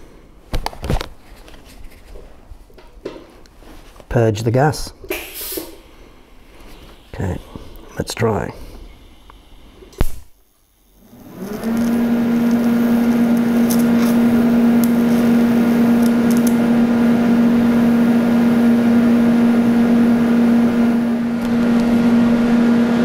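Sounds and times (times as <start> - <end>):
welding arc humming and hissing: 5.2 - 23.0.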